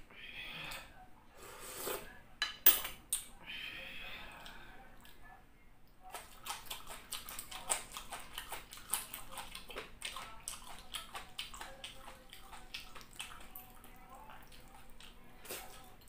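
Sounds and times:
person chewing food: 0:06.1 - 0:16.0.

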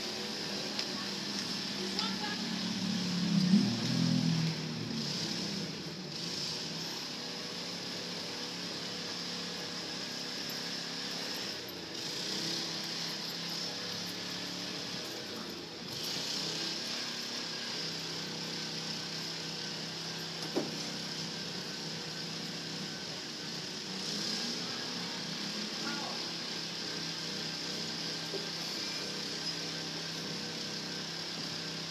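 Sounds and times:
faint mechanical drone: 0:00.0 - 0:31.9
outdoor hum and hiss: 0:00.0 - 0:31.9.

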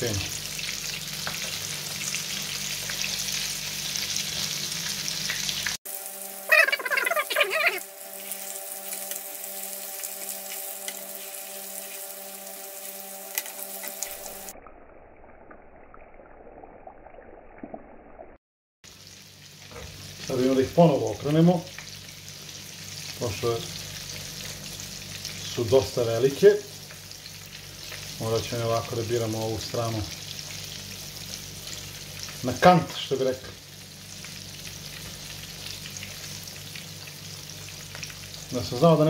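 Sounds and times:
meatballs sizzling in oil: 0:00.0 - 0:14.6, 0:18.9 - 0:39.0
steady hum with held tones: 0:05.9 - 0:14.5.

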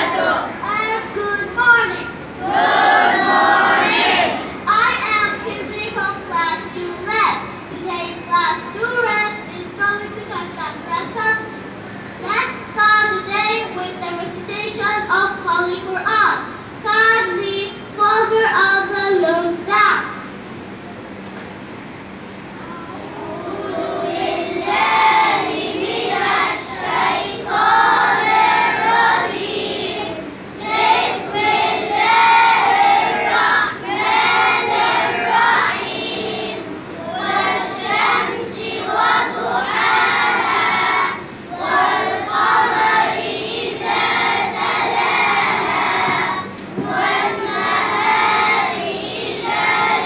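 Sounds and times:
children singing in unison: 0:00.0 - 0:00.6, 0:02.4 - 0:04.5, 0:23.2 - 0:50.0.

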